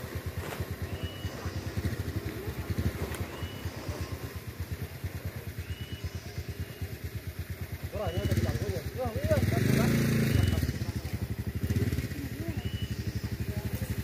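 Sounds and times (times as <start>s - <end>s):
vehicle engine idling: 0.0s - 14.0s.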